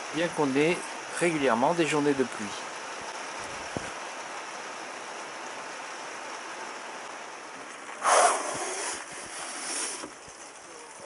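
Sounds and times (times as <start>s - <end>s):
rain on a vehicle roof: 1.0s - 8.0s.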